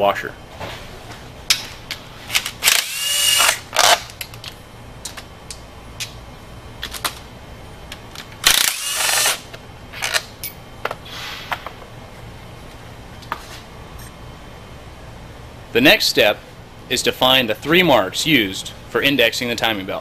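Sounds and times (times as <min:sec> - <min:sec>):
cordless drill whirring: 0:02.6 - 0:04.0, 0:08.5 - 0:09.4.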